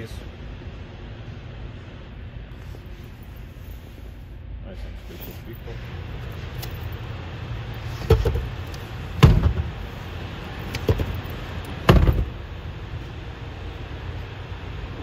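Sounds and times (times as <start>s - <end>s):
steady low rumble: 0.0s - 15.0s
sharp thumps: 9.2s - 9.8s.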